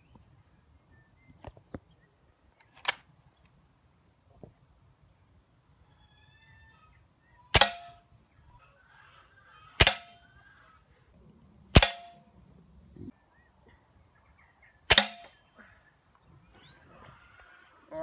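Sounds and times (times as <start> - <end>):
air rifle shots: 7.5 - 8.0, 9.8 - 10.2, 11.7 - 12.2, 14.9 - 15.4.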